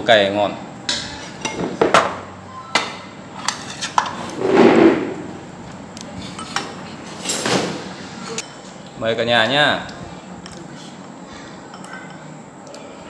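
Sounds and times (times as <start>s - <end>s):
tableware clinking on metal tray: 2.7s - 4.3s.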